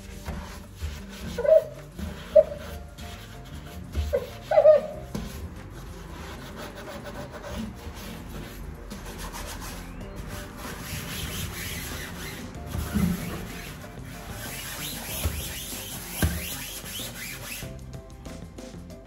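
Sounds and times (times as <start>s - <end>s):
sponge scrubbing a steel sink: 0.0s - 17.8s.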